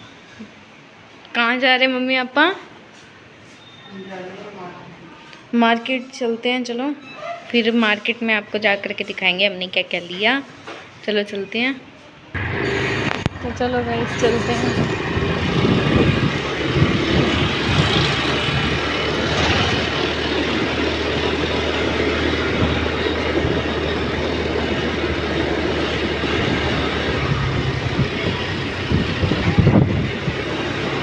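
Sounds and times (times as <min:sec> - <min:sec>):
scooter engine running: 0:12.4 - 0:31.0
wind rushing over microphone: 0:12.4 - 0:31.0.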